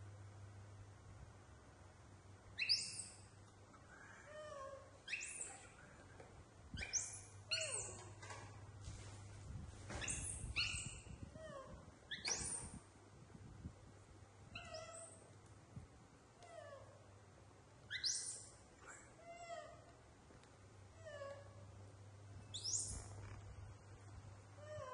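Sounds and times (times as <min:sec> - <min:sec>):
young monkeys squealing: 0:05.1 - 0:05.8, 0:06.8 - 0:08.2, 0:10.0 - 0:11.1.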